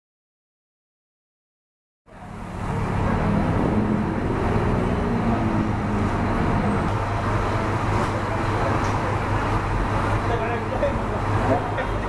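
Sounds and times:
diesel engine idling: 2.1s - 12.0s.

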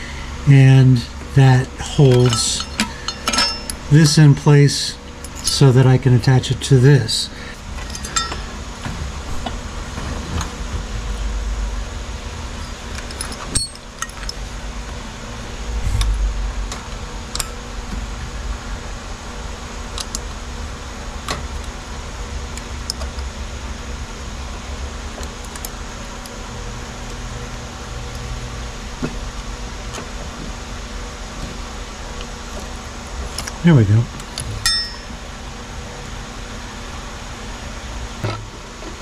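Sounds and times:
steady low hum: 0.0s - 39.0s
low handling thuds: 15.7s - 17.0s.

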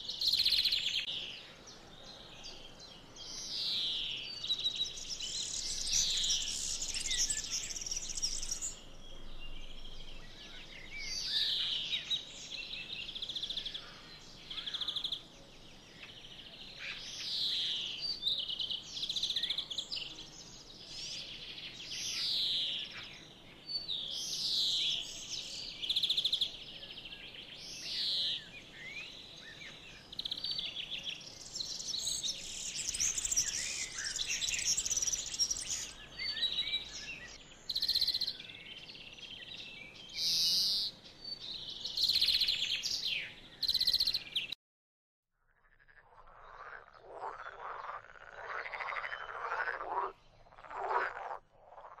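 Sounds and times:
songbirds chirping: 0.0s - 44.6s, 45.8s - 52.0s
frogs croaking: 45.4s - 52.0s.

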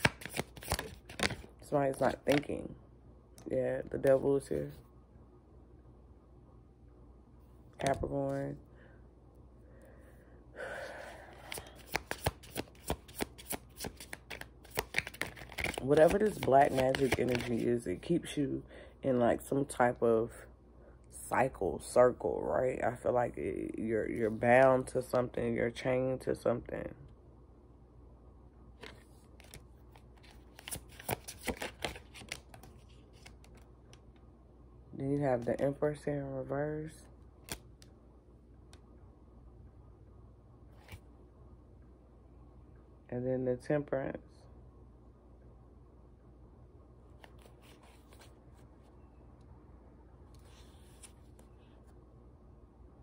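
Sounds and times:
sharp card clicks: 0.0s - 1.4s
cards being shuffled: 0.0s - 2.5s, 11.3s - 17.8s, 28.8s - 33.7s, 37.4s - 37.9s, 40.8s - 41.0s, 47.2s - 48.7s.

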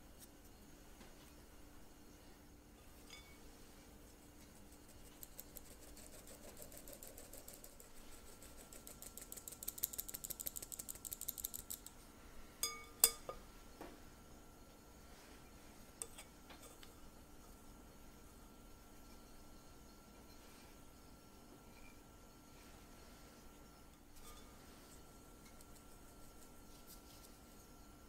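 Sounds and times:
sieve clinking against glass bowl: 12.6s - 13.4s.

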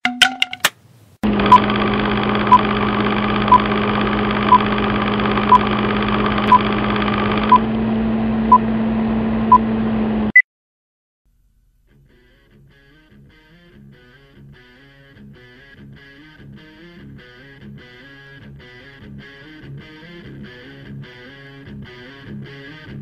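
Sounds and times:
film projector whirring: 1.2s - 10.0s.

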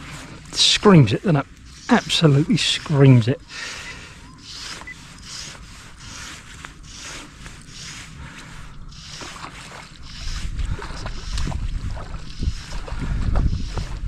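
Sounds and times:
wind buffeting microphone: 10.0s - 14.0s.

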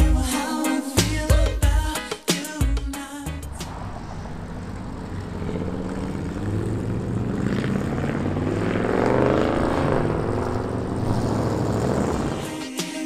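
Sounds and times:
truck engine accelerating: 3.2s - 12.6s.

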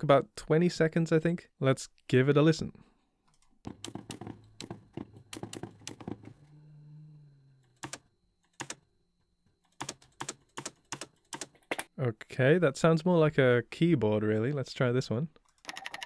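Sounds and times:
low hum: 4.2s - 9.6s.

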